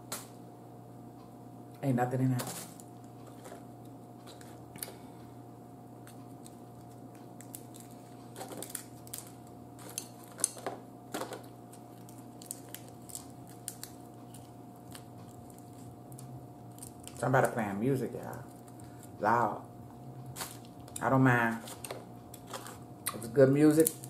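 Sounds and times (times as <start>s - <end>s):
steady low hum: 0.0s - 24.0s
crab shell cracking: 6.0s - 17.2s.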